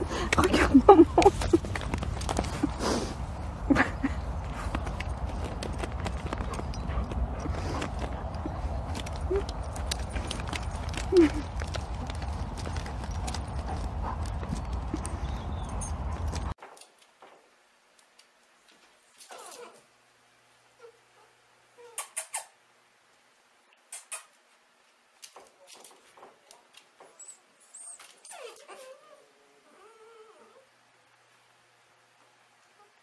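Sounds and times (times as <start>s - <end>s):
puppies whimpering and yipping: 5.4s - 10.4s.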